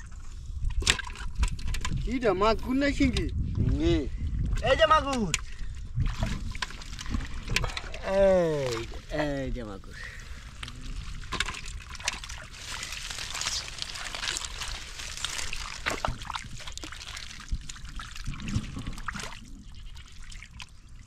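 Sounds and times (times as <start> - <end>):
hands sloshing in muddy water: 5.4 - 9.2, 10.0 - 21.0.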